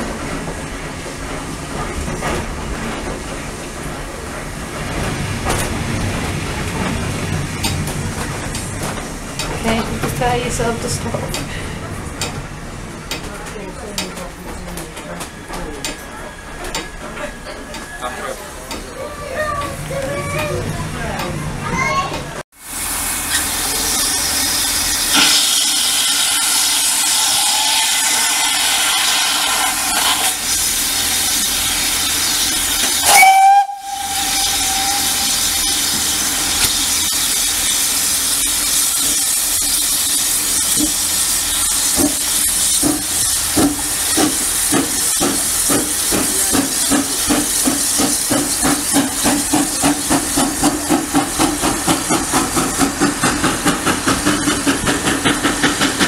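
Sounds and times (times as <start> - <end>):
steam hissing: 22.6 - 56.0
steam locomotive exhaust beats: 22.6 - 56.0
locomotive whistle: 23.3 - 30.4, 32.8 - 37.2.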